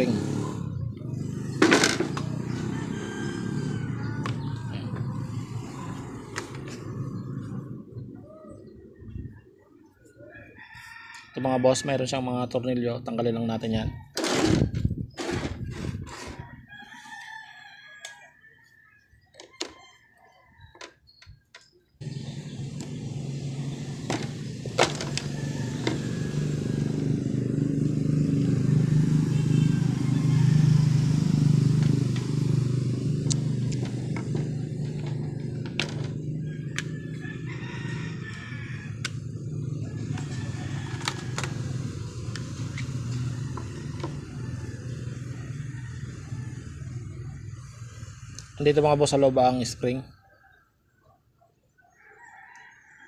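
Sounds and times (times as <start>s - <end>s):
vehicle engine running: 0.0s - 8.2s, 22.0s - 48.9s.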